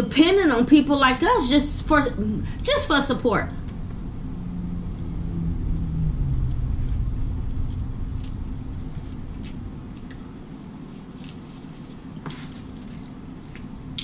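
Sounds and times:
low rumble: 0:00.8 - 0:12.2
low tone sliding down: 0:01.8 - 0:11.2.

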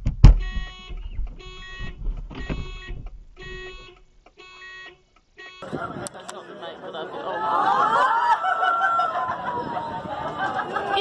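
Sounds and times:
car alarm electronic tone: 0:00.3 - 0:06.1.

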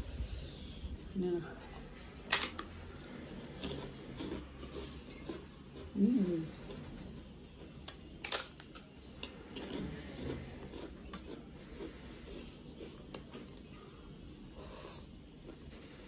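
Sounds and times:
chewing: 0:02.3 - 0:15.7
woman humming: 0:06.0 - 0:06.5.

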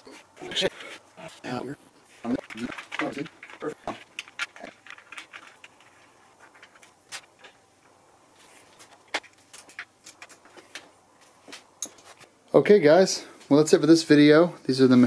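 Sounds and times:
metal parts clicking and tapping: 0:02.4 - 0:07.6, 0:09.1 - 0:10.9.

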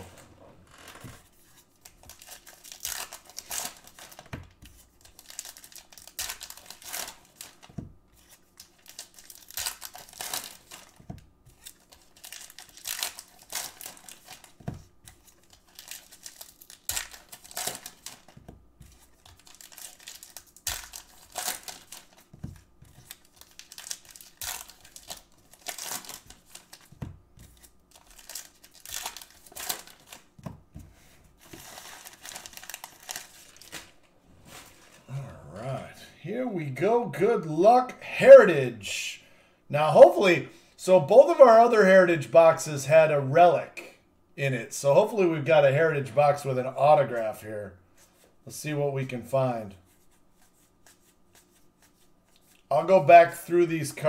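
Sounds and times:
plastic wrappers tearing and crinkling: 0:00.7 - 0:30.4, 0:31.4 - 0:34.9.

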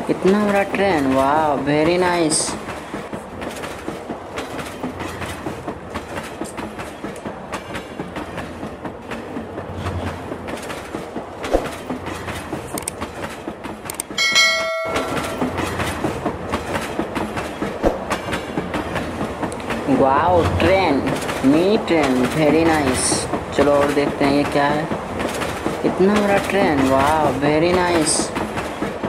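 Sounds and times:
toy train clattering on track: 0:10.5 - 0:18.8.

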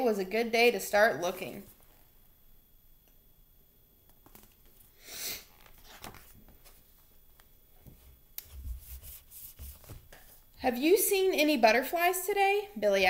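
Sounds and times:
page turning swish: 0:05.6 - 0:06.8.

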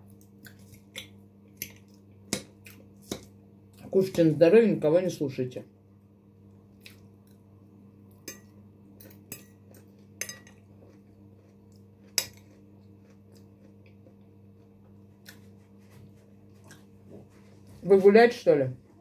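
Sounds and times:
faint low hum: 0:00.0 - 0:19.0
cutlery clinking on a plate: 0:10.2 - 0:10.6.

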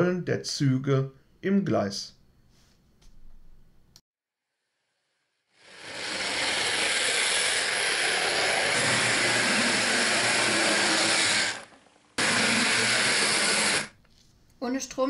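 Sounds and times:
model train motor whirring rattle: 0:05.6 - 0:13.9.

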